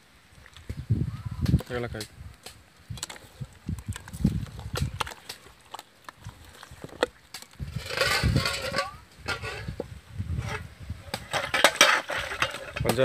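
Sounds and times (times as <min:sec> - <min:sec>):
hand squelching wet food: 0:02.4 - 0:08.0.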